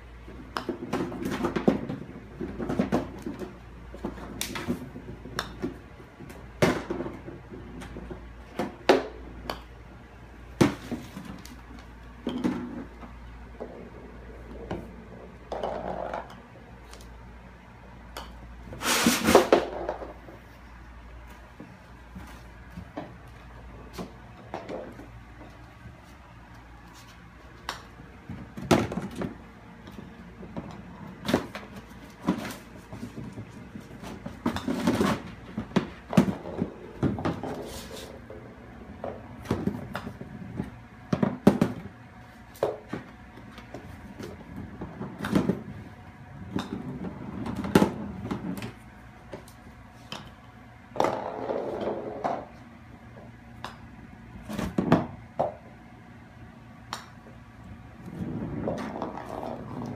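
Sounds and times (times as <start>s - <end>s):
golf balls knocking and rattling: 0.1s - 55.9s, 56.8s - 59.9s.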